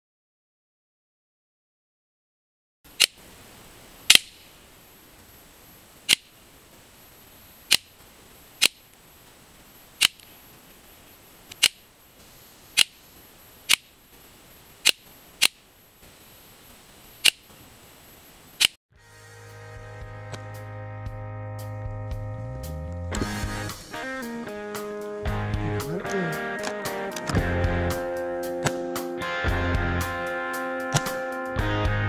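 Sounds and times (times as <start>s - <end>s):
air pistol shots: 4.1s - 4.4s.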